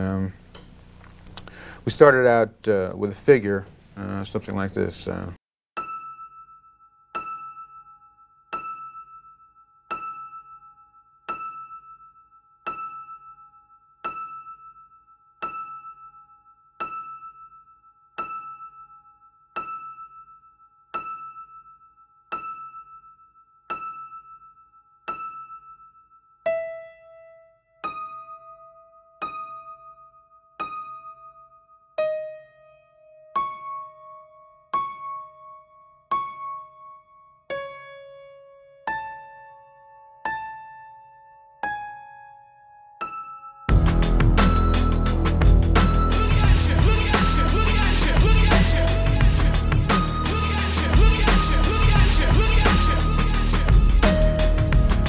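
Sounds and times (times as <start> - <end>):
repeated high piano note: 43.3 - 55.0.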